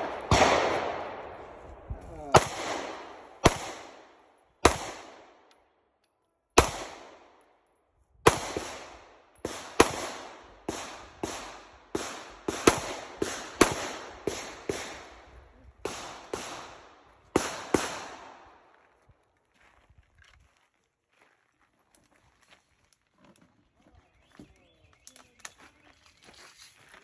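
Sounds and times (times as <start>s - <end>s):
handgun shots echoing: 0.0s - 1.6s, 2.3s - 5.6s, 6.6s - 7.3s, 8.3s - 15.1s.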